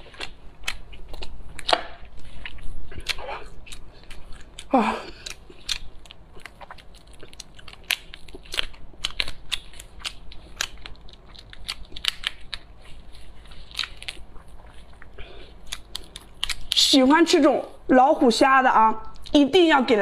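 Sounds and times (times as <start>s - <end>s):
prawn shells cracking: 5.2s - 16.8s.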